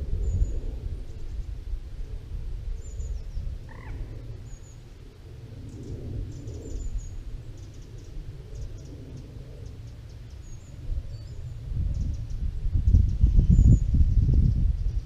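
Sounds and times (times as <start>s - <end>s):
wind rumble on microphone: 0.0s - 15.0s
small birds chirping: 5.6s - 15.0s.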